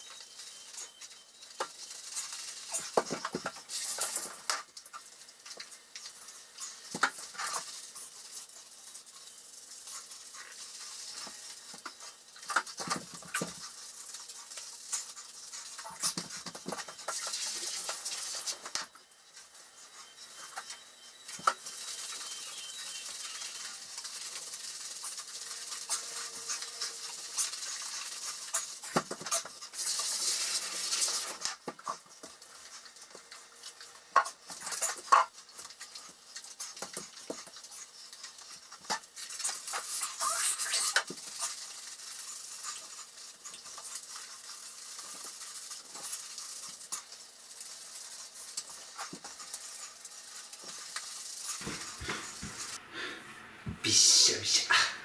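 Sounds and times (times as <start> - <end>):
hands rubbing shampoo lather: 50.8 - 52.8.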